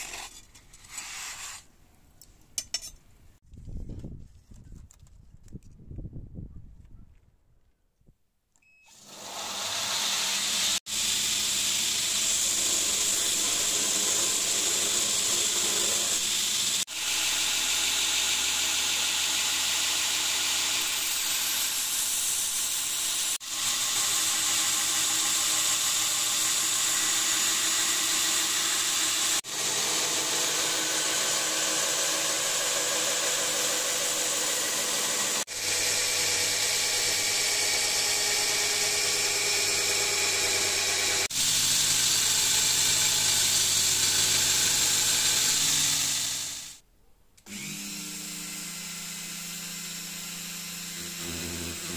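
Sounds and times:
belt grinder grinding steel: 8.9s - 46.8s, 47.5s - 51.9s
grinder motor hum: 23.5s - 46.7s, 47.4s - 51.9s.

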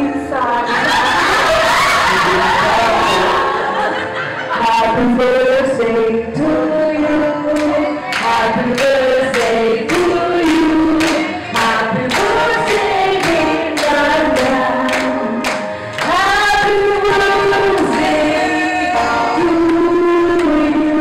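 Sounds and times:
woman singing into microphone: 4.6s - 21.0s
hand-clapping in time: 7.5s - 16.4s.

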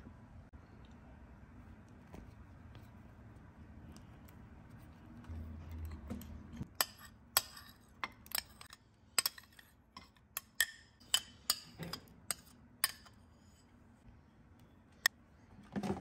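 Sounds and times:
metal spoon clinking on bowls: 5.7s - 13.7s.

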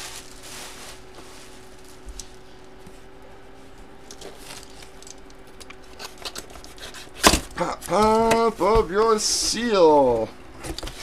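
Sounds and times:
faint steady hum: 0.0s - 11.0s.

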